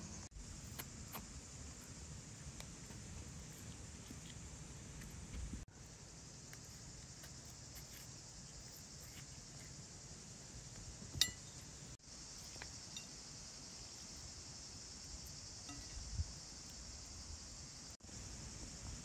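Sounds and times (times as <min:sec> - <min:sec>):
insects chirring: 0:00.0 - 0:19.0
metal spoon clinking on dish: 0:11.2 - 0:11.5.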